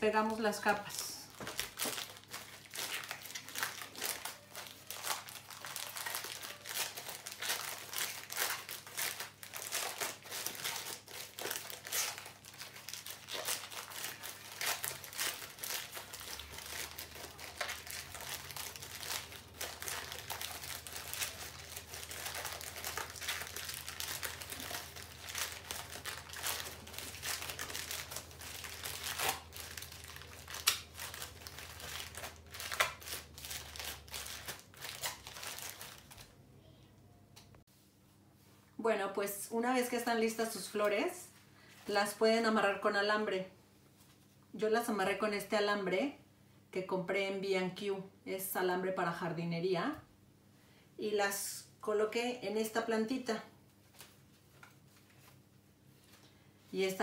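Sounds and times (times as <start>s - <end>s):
plastic bag crinkling: 0.3s - 36.3s.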